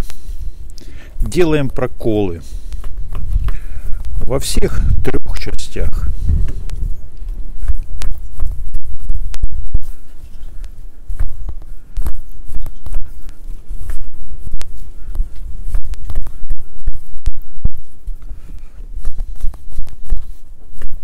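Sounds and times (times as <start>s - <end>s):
low rumble: 5.9s - 20.0s.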